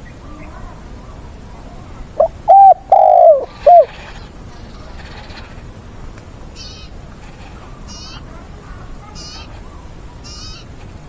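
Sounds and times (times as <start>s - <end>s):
dove cooing: 2.2s - 4.2s.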